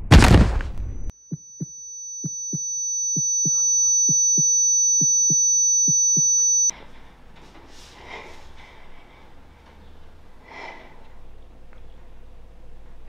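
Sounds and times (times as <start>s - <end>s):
high-pitched ringing tone: 0.8s - 6.7s
heartbeat thumps: 1.3s - 6.5s.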